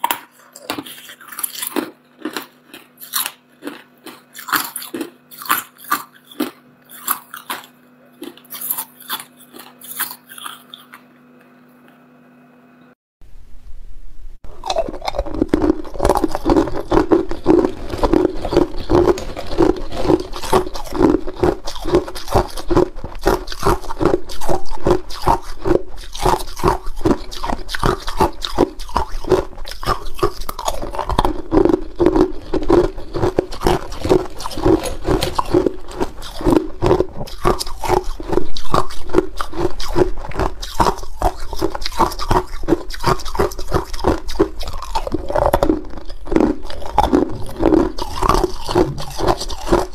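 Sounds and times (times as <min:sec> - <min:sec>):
ice cubes crunched and chewed: 0:00.0 - 0:11.1, 0:14.5 - 0:49.9.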